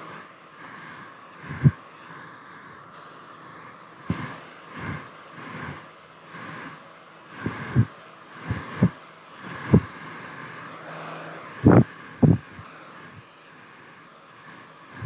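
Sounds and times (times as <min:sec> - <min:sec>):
hair dryer blowing: 0:00.0 - 0:15.0
airflow thumping microphone: 0:01.4 - 0:01.8, 0:07.4 - 0:10.0, 0:11.0 - 0:13.2.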